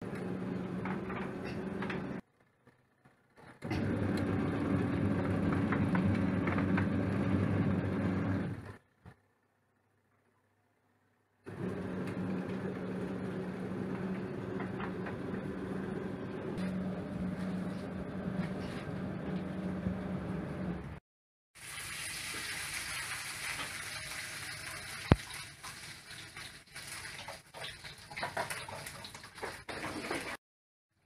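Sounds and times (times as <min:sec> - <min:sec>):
washing machine motor hum: 0:00.0 - 0:02.2, 0:03.6 - 0:09.0, 0:11.5 - 0:21.0
water churning in tub: 0:21.6 - 0:30.4.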